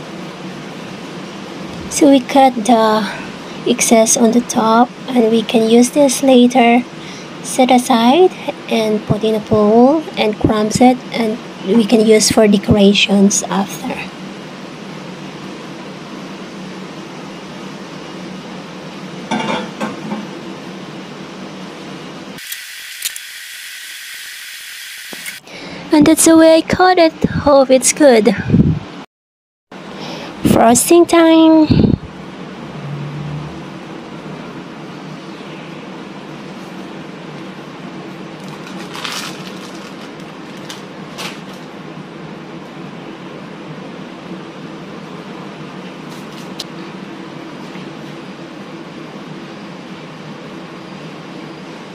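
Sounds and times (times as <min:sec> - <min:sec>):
steady background hiss: 0:00.0 - 0:29.0, 0:29.8 - 0:51.9
hum: 0:00.0 - 0:29.1, 0:29.8 - 0:41.1
bowl and knife clattering: 0:19.3 - 0:20.2.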